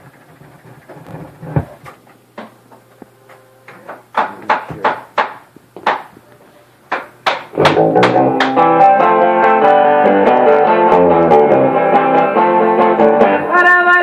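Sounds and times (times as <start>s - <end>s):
jukebox motor hum: 0.0s - 3.9s.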